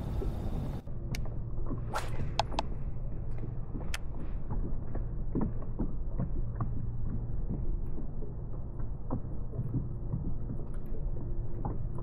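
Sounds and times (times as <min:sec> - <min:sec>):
steady low rumble: 0:00.0 - 0:12.0
fishing gear clicks and taps: 0:02.3 - 0:02.7.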